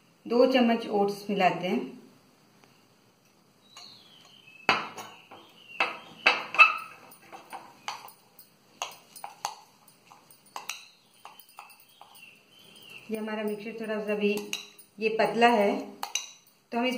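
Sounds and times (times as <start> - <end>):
spoons clinking against glass bowls: 3.7 - 16.9.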